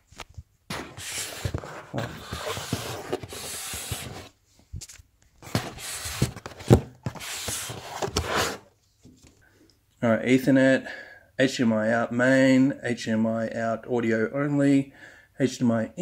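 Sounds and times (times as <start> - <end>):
rubbing and scraping on tabletop: 0.7 - 4.4, 5.4 - 8.7.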